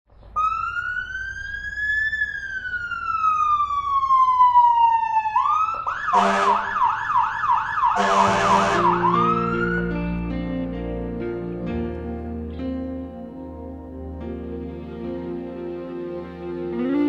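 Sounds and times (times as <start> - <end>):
electronic siren wailing and yelping: 0.4 - 9.8
music: 8.1 - 17.0.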